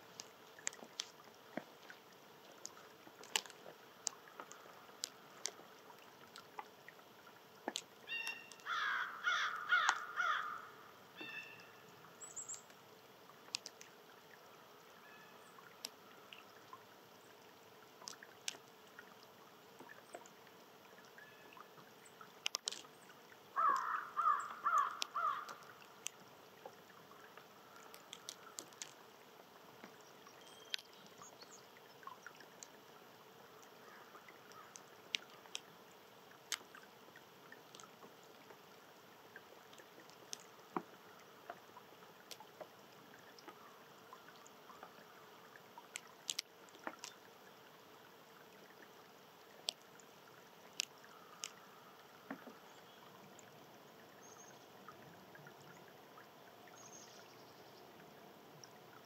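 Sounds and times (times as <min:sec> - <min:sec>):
faint clicks: 0:00.0 - 0:08.8, 0:09.4 - 0:10.5, 0:11.2 - 0:14.9, 0:15.5 - 0:32.9, 0:33.6 - 0:38.6, 0:39.4 - 0:47.3, 0:48.4 - 0:59.0
crow cawing: 0:08.1 - 0:10.8, 0:23.6 - 0:25.6.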